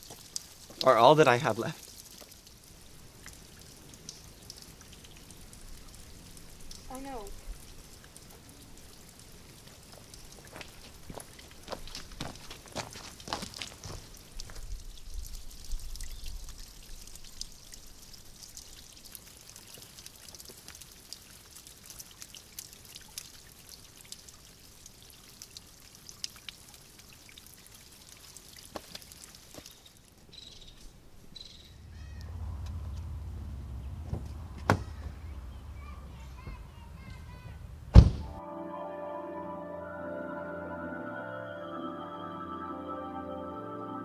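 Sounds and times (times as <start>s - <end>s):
water dripping on rock: 0.0s - 30.2s
sharp thud: 37.9s - 38.3s.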